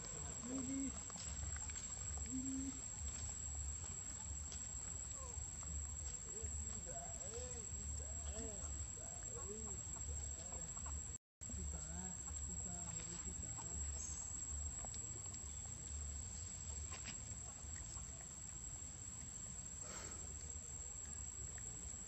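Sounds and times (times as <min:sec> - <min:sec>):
high insect drone: 0:00.0 - 0:22.0
faint ticks: 0:12.2 - 0:22.0.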